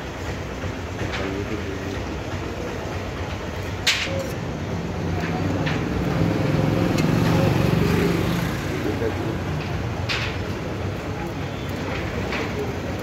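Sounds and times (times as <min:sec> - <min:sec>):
street traffic noise: 0:00.0 - 0:13.0
vehicle engine passing: 0:04.5 - 0:11.0.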